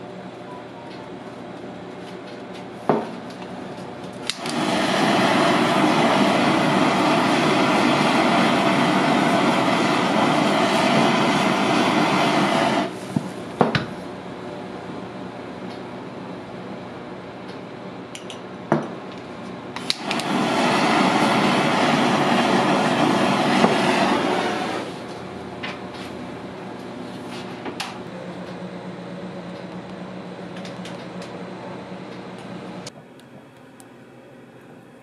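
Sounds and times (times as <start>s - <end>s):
blowtorch ignition click: 4.1s - 13.0s, 19.7s - 25.8s
blowtorch flame hissing: 4.2s - 13.6s, 19.7s - 27.6s.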